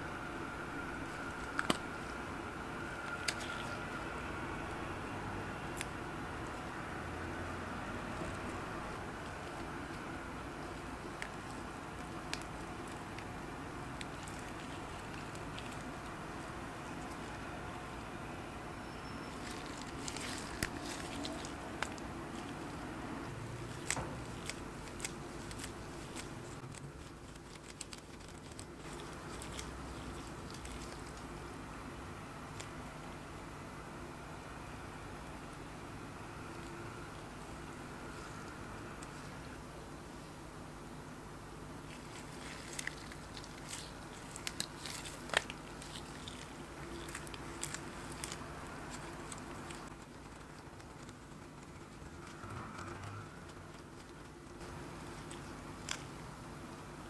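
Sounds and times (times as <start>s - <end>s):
low background hum: 0.0s - 57.0s
steady background hiss: 0.0s - 57.0s.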